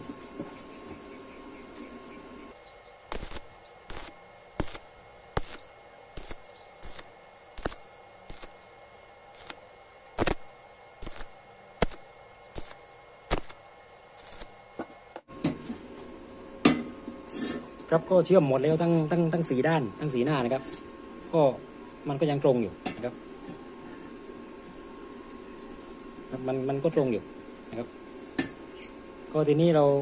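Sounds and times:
faint steady hum: 0:00.0 - 0:30.0
welding arc crackling: 0:02.6 - 0:15.2.

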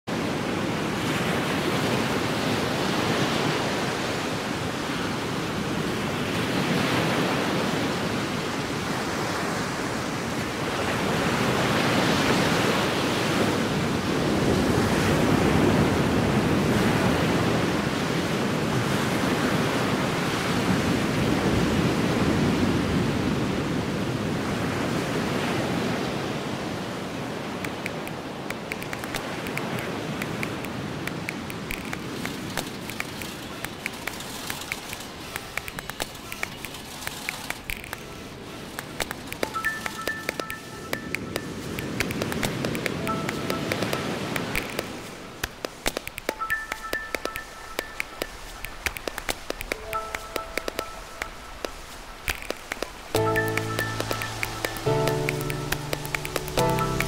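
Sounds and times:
wind: 0:00.0 - 0:57.0.

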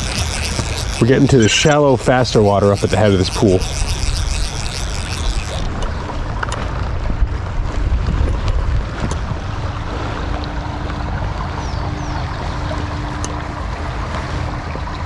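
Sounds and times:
stream water rushing over stones: 0:00.0 - 0:05.5
wind rumbling on microphone: 0:00.0 - 0:15.0.

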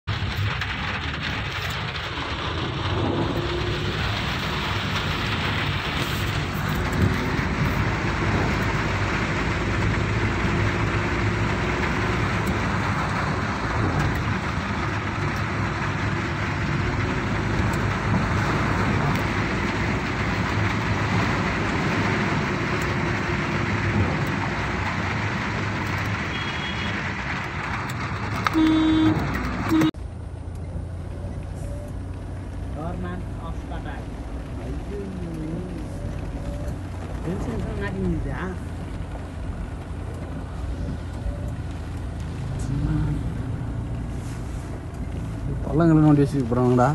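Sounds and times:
car engine and road rumble: 0:00.0 - 0:46.9
rain on a car: 0:00.0 - 0:46.9
wet tyres hissing: 0:00.1 - 0:29.9.

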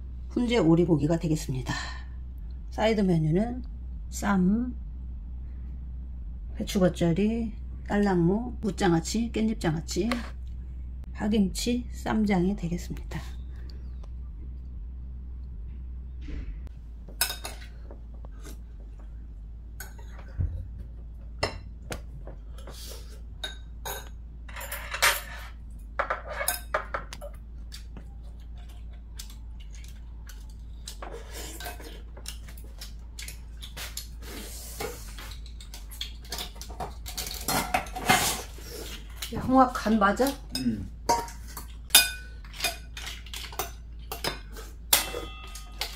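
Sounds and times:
metal utensils clinking on ceramic bowl: 0:23.4 - 0:27.4, 0:39.1 - 0:45.9.

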